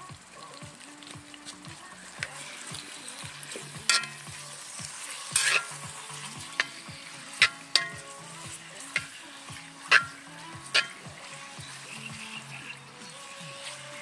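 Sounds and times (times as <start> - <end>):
meat sizzling in hot oil: 0.0 - 14.0
spatula scraping a pan: 3.4 - 12.6.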